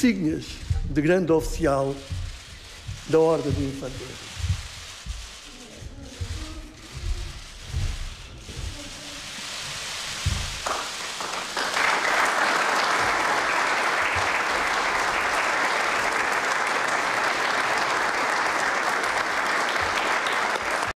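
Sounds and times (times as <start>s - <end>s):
people applauding: 9.4s - 21.0s.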